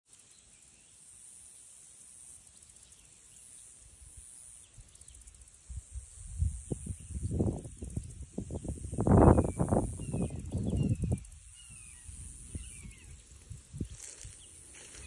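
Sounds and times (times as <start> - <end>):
insects hissing: 0.1 - 15.0
faint bird chirps: 2.4 - 15.0
wind rumble on microphone: 5.7 - 15.0.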